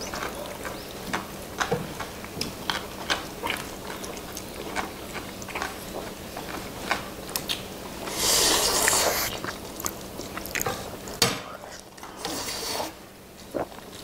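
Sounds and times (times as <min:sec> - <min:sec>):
wet chewing: 0:00.0 - 0:12.6
noodle slurp: 0:07.9 - 0:10.7, 0:12.2 - 0:14.0.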